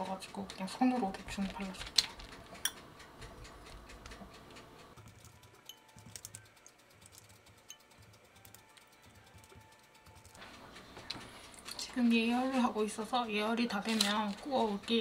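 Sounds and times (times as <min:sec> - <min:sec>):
wet fingers patting dough: 0:00.0 - 0:11.4.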